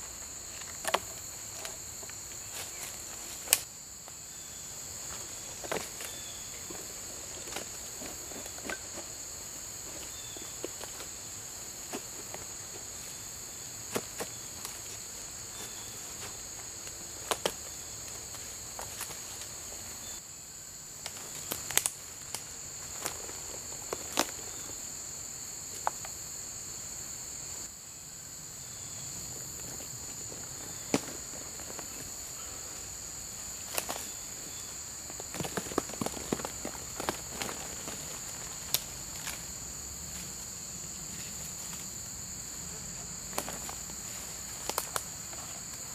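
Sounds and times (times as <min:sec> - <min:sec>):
insects droning: 0:00.0 - 0:45.9.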